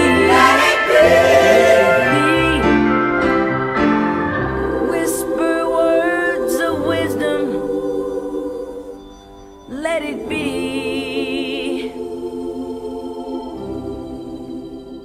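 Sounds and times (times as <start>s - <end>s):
person singing: 0.0s - 3.4s, 4.4s - 8.9s, 9.7s - 13.0s
organ chord: 0.0s - 15.0s.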